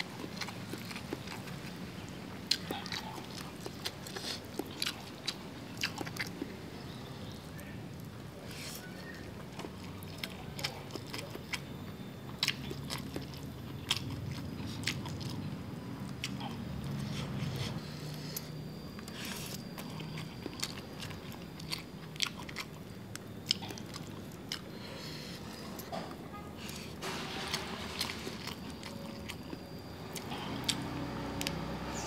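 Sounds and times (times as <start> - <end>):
chewing and crunching food: 0.0 - 32.0.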